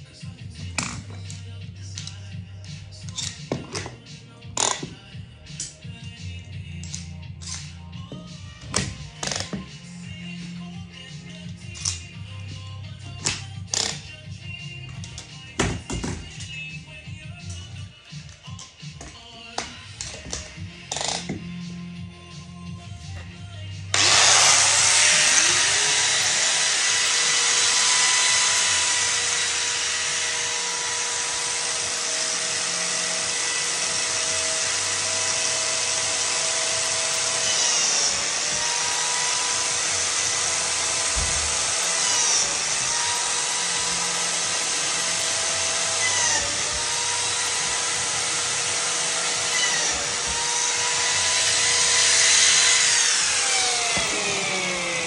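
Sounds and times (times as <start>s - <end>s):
power tool motor whining: 23.9s - 55.0s.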